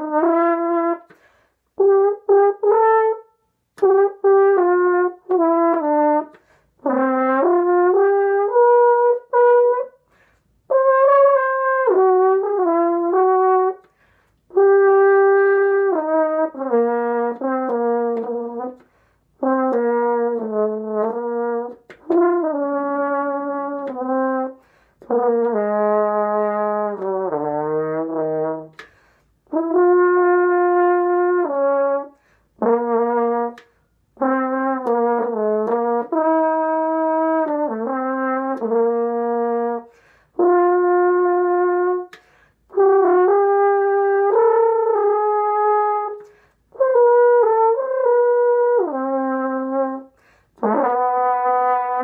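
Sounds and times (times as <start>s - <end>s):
french horn melody: 0.0s - 52.0s
player breathing: 1.1s - 1.8s, 24.6s - 25.0s, 28.8s - 29.4s, 39.9s - 40.4s, 50.1s - 50.6s.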